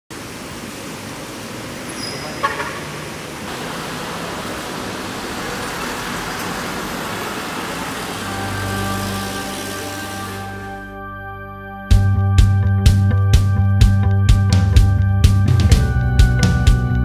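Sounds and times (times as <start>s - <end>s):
road traffic: 0.1s - 11.0s
tyre hiss on wet road: 0.2s - 10.9s
music: 8.1s - 17.0s.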